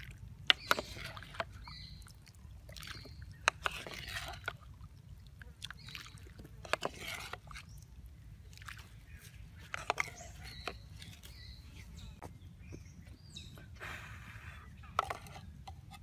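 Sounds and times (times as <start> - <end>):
water sloshing in a pot: 0.0 - 11.3.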